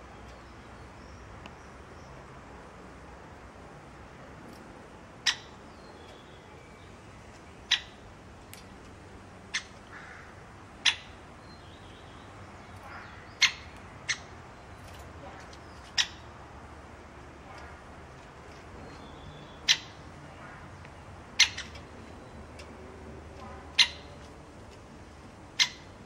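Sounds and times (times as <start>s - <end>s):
woodpecker sharp kik call: 21.4s - 21.8s, 23.7s - 24.1s.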